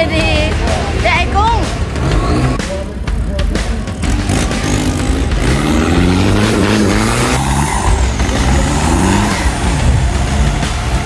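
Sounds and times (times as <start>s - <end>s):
off-road engine revving hard: 1.7s - 2.7s, 3.6s - 11.0s.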